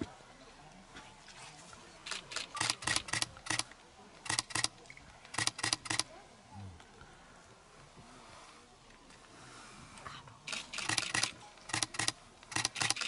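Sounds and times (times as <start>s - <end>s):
camera shutters clicking rapidly: 2.0s - 4.7s, 5.3s - 6.1s, 10.5s - 13.0s.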